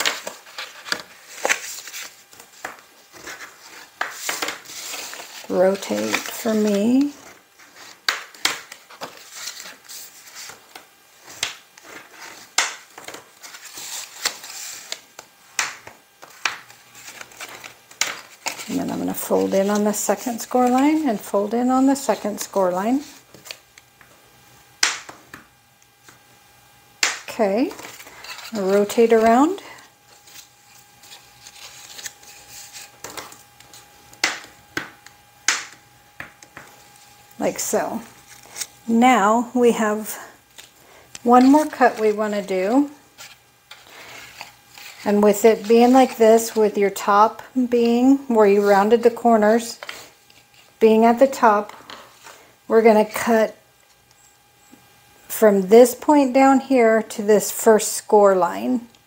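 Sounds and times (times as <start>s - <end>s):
paper rustling and sliding: 0.0s - 23.6s, 27.6s - 34.5s, 36.5s - 38.8s, 39.9s - 46.8s.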